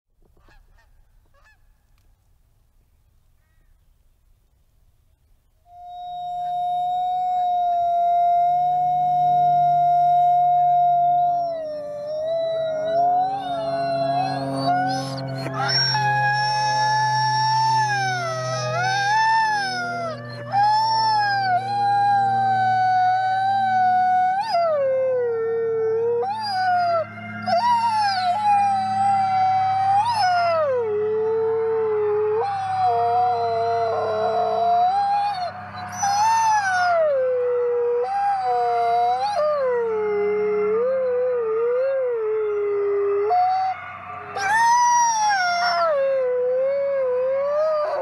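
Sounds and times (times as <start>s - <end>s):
fainter wolf howls: 5.7s - 48.0s
wolf howling close up: 5.7s - 48.0s.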